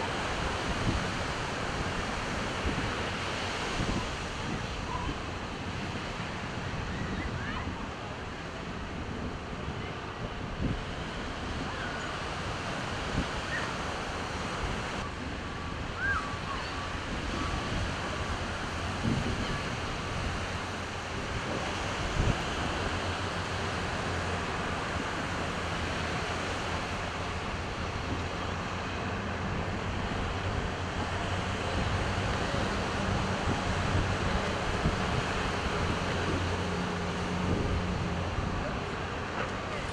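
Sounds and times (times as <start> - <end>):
bulldozer diesel engines droning: 0.0 - 39.9
surf and gushing water: 0.0 - 39.9.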